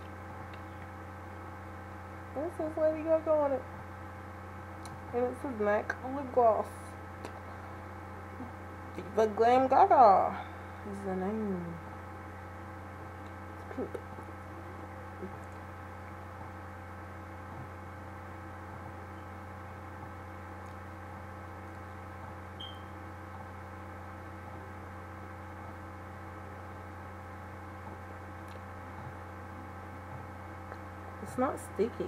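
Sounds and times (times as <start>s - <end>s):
electrical mains hum: 0.0s - 32.0s
faint high chirp: 22.6s - 23.0s.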